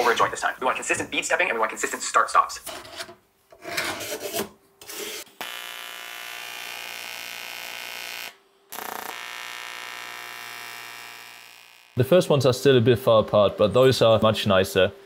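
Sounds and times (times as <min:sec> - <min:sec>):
metal plates scraping: 0:02.6 - 0:05.2
welding arc buzzing: 0:04.8 - 0:12.0.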